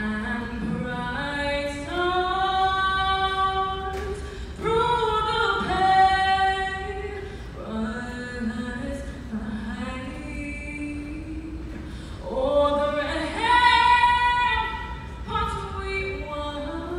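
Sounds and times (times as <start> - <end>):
woman singing a cappella: 0.0 - 16.9.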